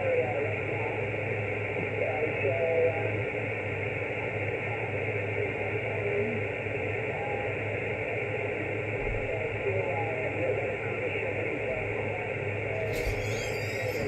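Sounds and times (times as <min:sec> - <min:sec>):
faint wavering radio voice: 0:00.0 - 0:14.0
radio band noise hiss: 0:00.0 - 0:14.0.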